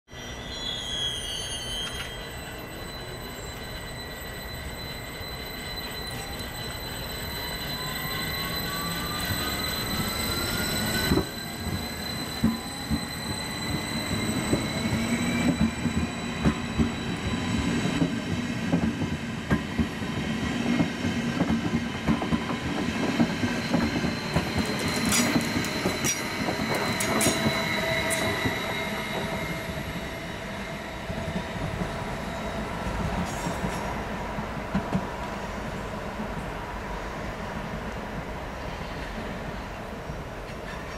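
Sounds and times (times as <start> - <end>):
electric train drive whine: 1.6 - 33.2.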